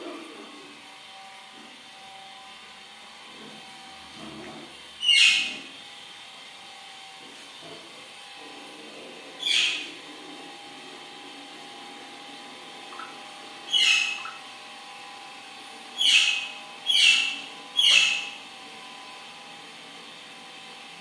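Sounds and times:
parakeet screeching: 5.0s - 5.7s, 9.4s - 10.0s, 12.9s - 14.4s, 16.0s - 18.4s.

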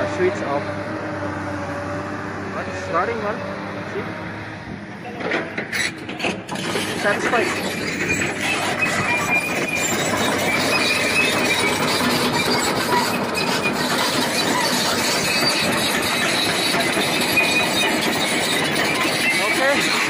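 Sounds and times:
excavator diesel engine: 0.0s - 20.0s
hydraulics working: 0.0s - 20.0s
high metallic squeaks: 5.0s - 20.0s.

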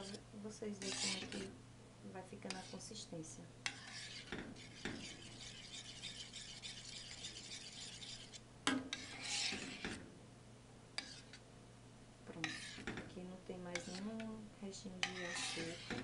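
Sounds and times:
metal spoon scraping a pot: 0.0s - 1.5s, 2.4s - 10.0s, 11.0s - 11.4s, 12.4s - 13.1s, 13.7s - 16.0s.

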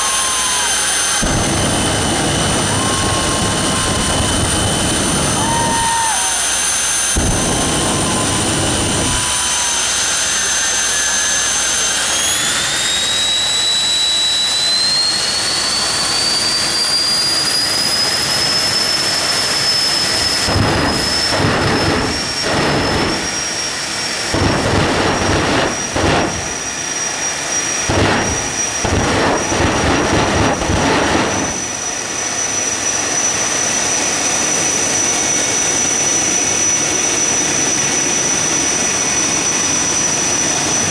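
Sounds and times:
loud rushing surges: 0.0s - 32.5s
turbine engine whine: 0.0s - 40.9s.

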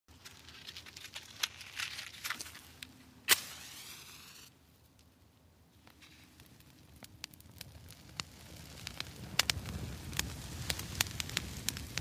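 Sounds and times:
bonfire crackling and popping: 0.1s - 12.0s
hiss: 3.3s - 4.5s.

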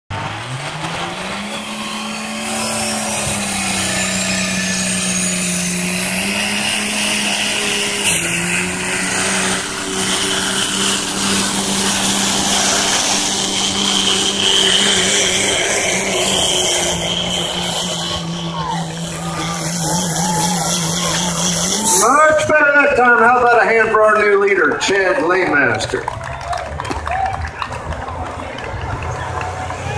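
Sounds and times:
diesel engine at full throttle: 0.1s - 29.9s
thin high whine: 1.9s - 23.2s.

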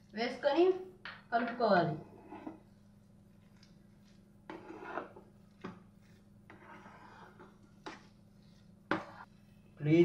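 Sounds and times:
spatula scraping a pan: 2.0s - 9.5s.

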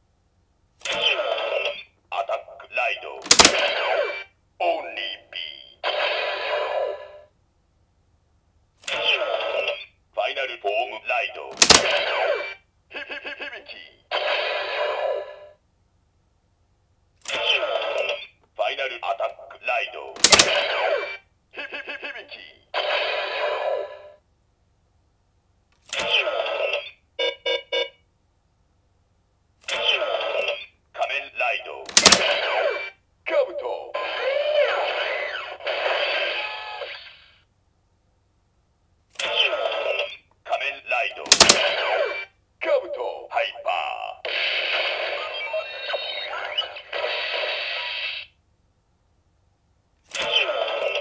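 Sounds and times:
sharp plastic click: 3.2s - 3.6s, 11.6s - 12.0s, 20.2s - 20.6s, 31.9s - 32.3s, 41.3s - 41.6s.

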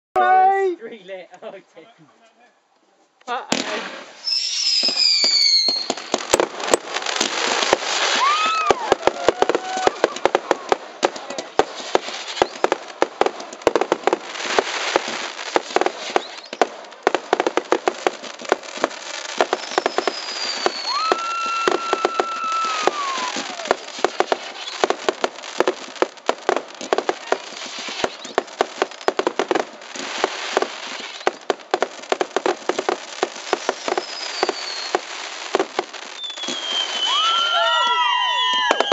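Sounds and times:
fireworks crackling and banging: 3.2s - 38.9s
firework whistles: 3.9s - 6.3s, 7.2s - 10.3s, 11.8s - 12.8s, 14.6s - 16.7s, 19.1s - 25.1s, 27.3s - 29.2s, 30.0s - 31.4s, 32.7s - 38.9s.

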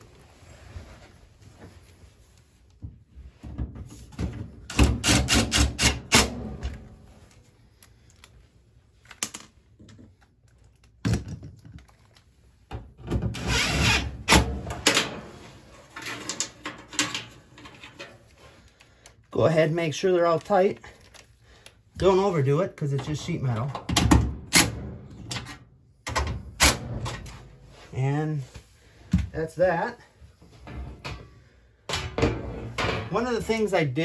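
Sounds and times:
cordless drill driving screws: 13.4s - 14.1s.

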